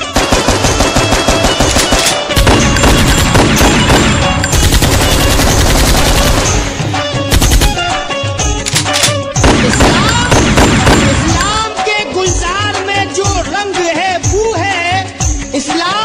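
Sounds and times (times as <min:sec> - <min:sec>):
machine-gun fire: 0:00.0 - 0:08.0, 0:09.4 - 0:11.6
music: 0:00.0 - 0:16.0.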